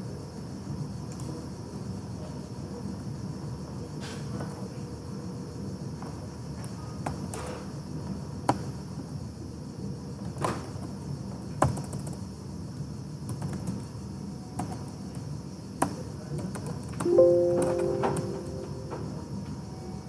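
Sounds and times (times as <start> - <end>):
low hum: 17.1 - 19.4
short pitched tone: 17.1 - 19.4.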